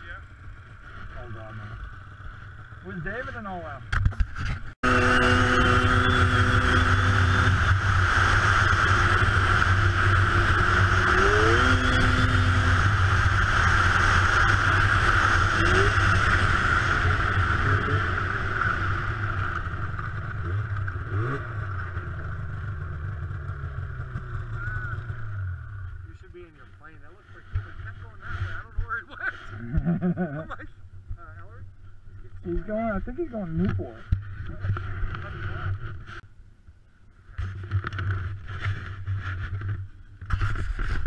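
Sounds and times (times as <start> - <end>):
snowmobile engine running: 4.8 - 30.6.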